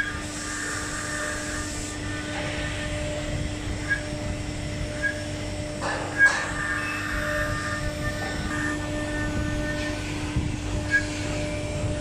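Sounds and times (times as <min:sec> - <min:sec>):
router spindle hum: 0:00.0 - 0:12.0
bit cutting wood: 0:05.8 - 0:11.1.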